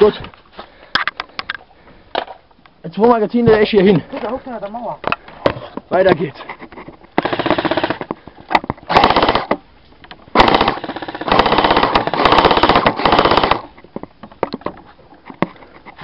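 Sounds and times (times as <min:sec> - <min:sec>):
airsoft gun firing bursts: 0:07.2 - 0:08.1, 0:08.9 - 0:09.6, 0:10.3 - 0:13.7.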